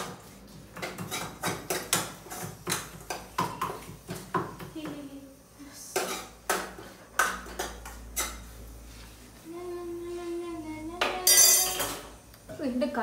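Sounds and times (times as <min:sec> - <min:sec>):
metal spoon clinking on pan: 0:11.2 - 0:12.1.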